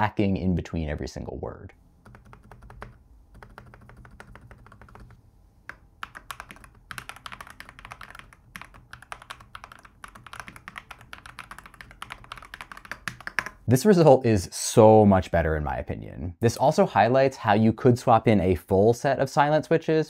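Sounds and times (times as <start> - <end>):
typing on mechanical keyboard: 2.0 - 13.7.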